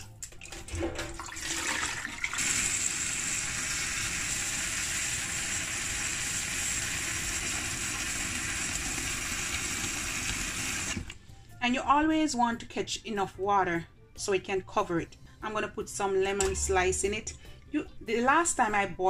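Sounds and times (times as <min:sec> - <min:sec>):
water splashing in metal bowl: 0:00.0 - 0:06.0
tap water pouring into bowl: 0:00.0 - 0:11.2.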